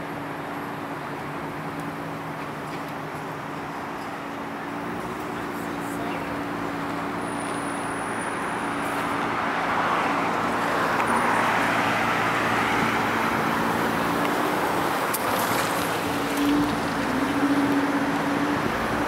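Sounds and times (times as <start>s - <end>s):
cars passing: 0.0s - 19.0s.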